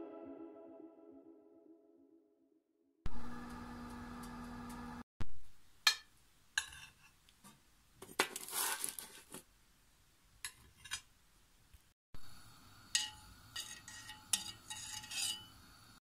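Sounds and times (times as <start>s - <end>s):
spoon scraping: 13.0s - 15.5s.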